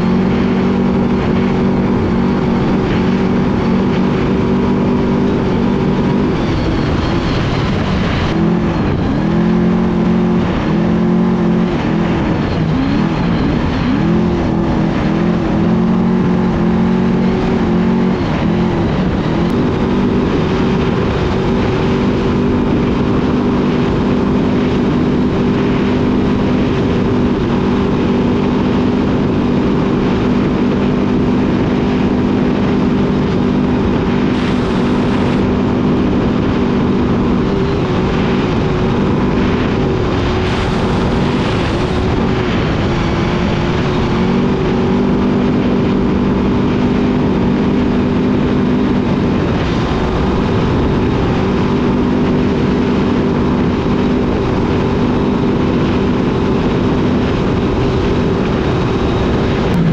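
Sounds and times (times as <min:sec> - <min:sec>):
truck engine at high revs: 0:00.0 - 0:59.9
wind rushing: 0:30.4 - 0:52.6, 0:56.0 - 0:59.9.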